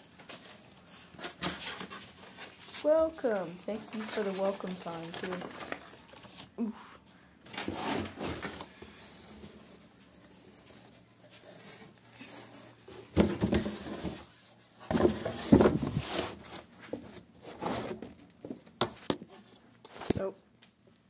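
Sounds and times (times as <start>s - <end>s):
handling rustling and bumps: 10.8s - 20.3s.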